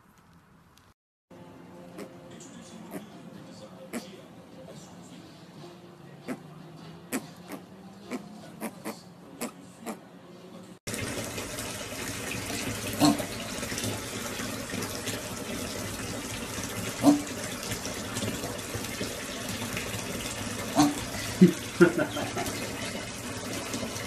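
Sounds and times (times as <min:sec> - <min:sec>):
water running into bathtub: 0:10.9 - 0:24.0.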